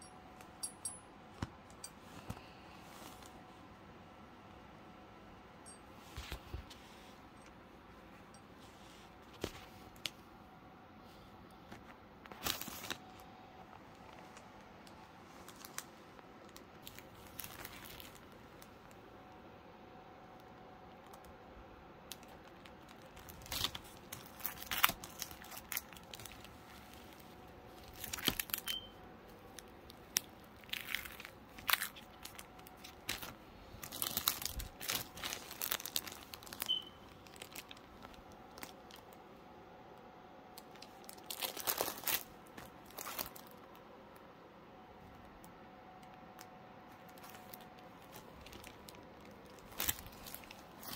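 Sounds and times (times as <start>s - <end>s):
plastic packaging crinkling: 12.2s - 13.3s, 14.0s - 19.0s, 22.1s - 39.2s, 40.6s - 43.8s, 46.4s - 50.9s.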